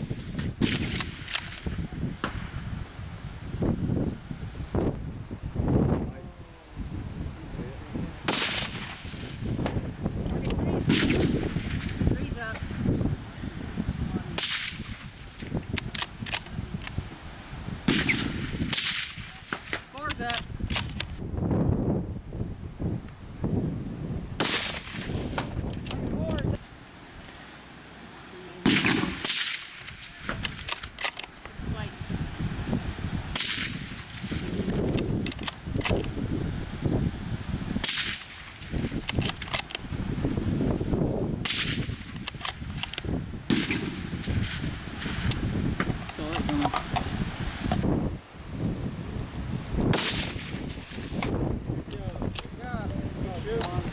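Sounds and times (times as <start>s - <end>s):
wind rumbling on microphone: 0.0s - 53.9s
sharp clicks: 0.6s - 2.4s, 15.7s - 17.0s, 41.5s - 43.8s
suppressed rifle shots: 0.6s - 2.4s, 8.3s - 9.8s, 10.8s - 12.0s, 14.4s - 15.0s, 17.9s - 19.8s, 24.4s - 25.6s, 28.6s - 31.1s, 33.3s - 34.4s, 37.8s - 39.6s, 41.4s - 42.9s, 43.5s - 44.6s, 49.9s - 51.0s.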